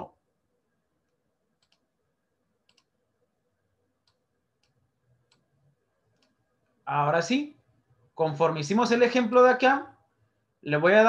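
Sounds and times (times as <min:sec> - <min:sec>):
faint clicks: 0:01.0 - 0:01.9, 0:02.7 - 0:03.0, 0:06.1 - 0:06.8.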